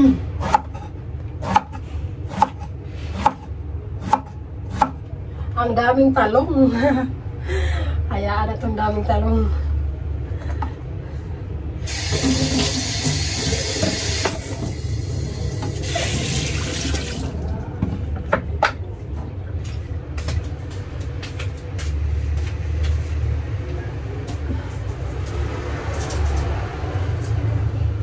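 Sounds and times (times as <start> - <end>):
kitchen tap running into sink: 11.9 - 17.5.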